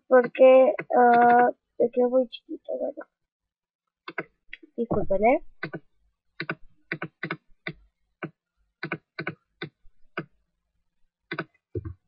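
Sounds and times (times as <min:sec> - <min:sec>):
keyboard and mouse clicks: 0:00.2 - 0:01.4, 0:04.1 - 0:10.4, 0:11.3 - 0:12.0.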